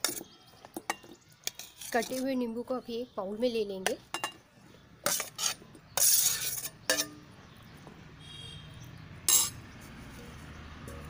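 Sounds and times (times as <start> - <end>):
steel spoon clinking on dishes: 4.1 - 4.4, 5.1 - 7.2, 9.3 - 9.6.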